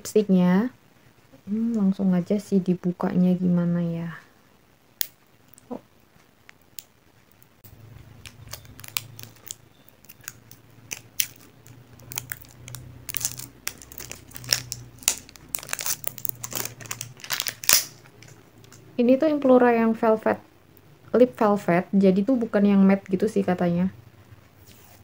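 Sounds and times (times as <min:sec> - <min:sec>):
plastic wrap crinkling: 0:06.4 - 0:18.9.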